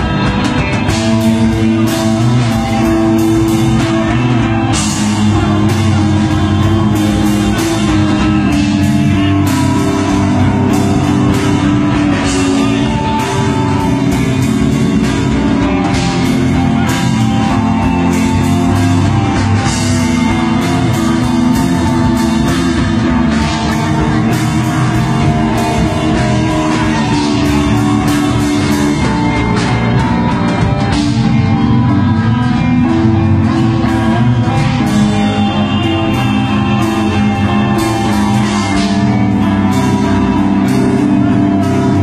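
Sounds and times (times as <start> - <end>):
metal band playing live: 0.0 - 42.0.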